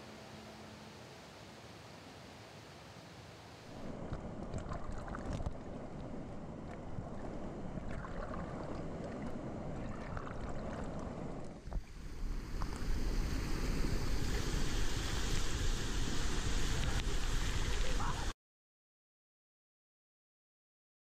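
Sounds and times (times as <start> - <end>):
pool water sloshing and splashing: 3.7 - 5.8, 6.6 - 18.2.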